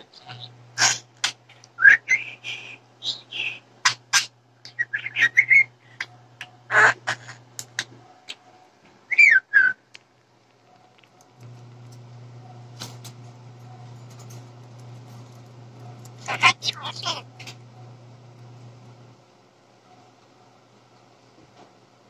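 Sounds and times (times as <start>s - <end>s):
budgerigar chattering and warbling: 2.1s - 7.4s, 16.2s - 17.3s.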